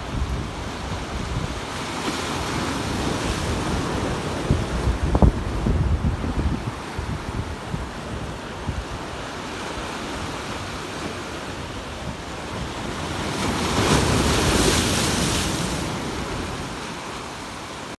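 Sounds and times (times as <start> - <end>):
sea waves washing against rocks: 0.0 - 18.0
wave breaking on boulders: 12.7 - 16.8.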